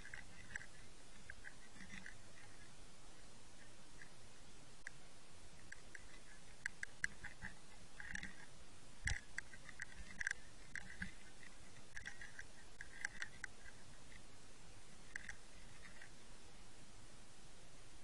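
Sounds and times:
sharp underwater clicks: 0.0s - 2.7s, 5.6s - 14.3s, 15.0s - 16.2s
steady underwater hiss: 0.0s - 18.0s.

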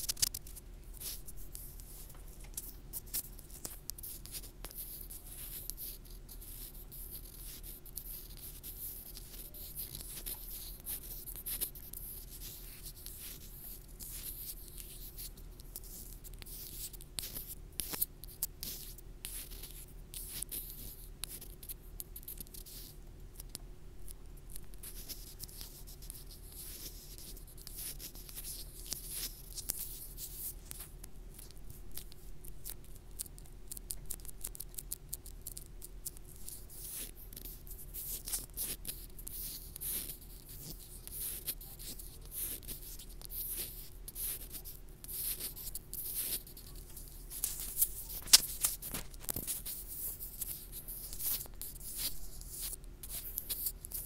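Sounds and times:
low steady hum: 0.0s - 54.0s
fingers scratching a microphone: 36.3s - 54.0s.

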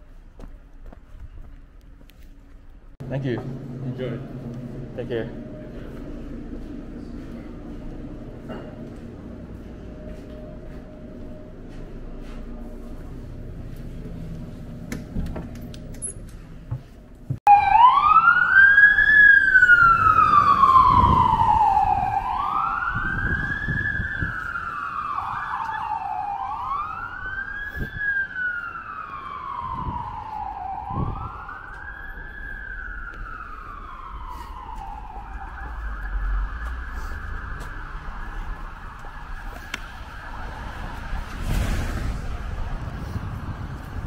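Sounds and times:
low street traffic: 0.0s - 44.0s
emergency vehicle siren wailing: 9.2s - 14.3s, 17.4s - 44.0s.

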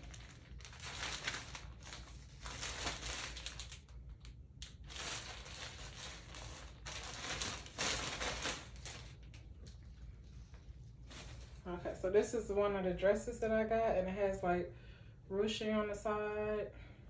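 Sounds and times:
clothes rustling and crinkling: 0.0s - 12.7s.

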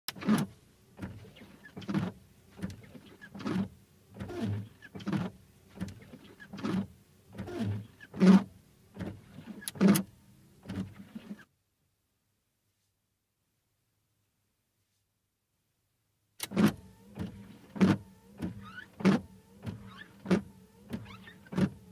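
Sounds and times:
windscreen wipers sweeping glass: 0.1s - 11.5s, 16.4s - 21.9s.

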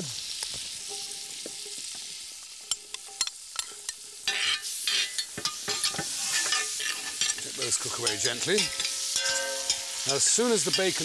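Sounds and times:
mushrooms sizzling in a pan: 0.0s - 11.0s
spoon scraping a pan: 0.8s - 11.0s.

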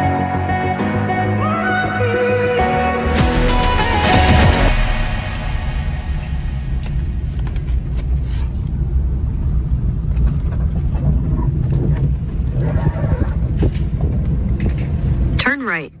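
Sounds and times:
car engine rumble: 2.8s - 15.4s
road noise: 3.0s - 15.4s.

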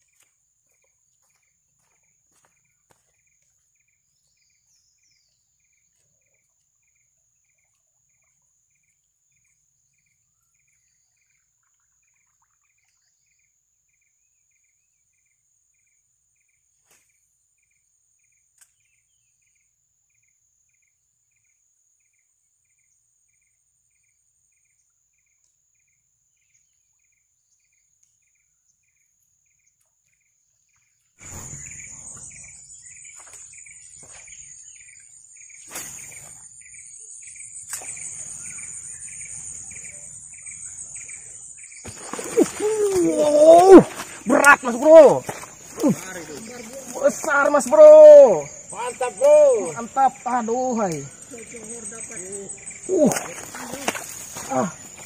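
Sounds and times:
insect chirping: 0.0s - 55.0s
insects high-pitched drone: 31.2s - 55.0s.

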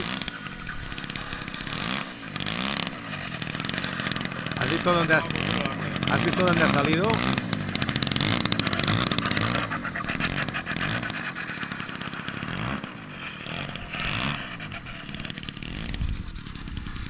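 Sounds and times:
model plane engine revving: 0.0s - 17.0s.

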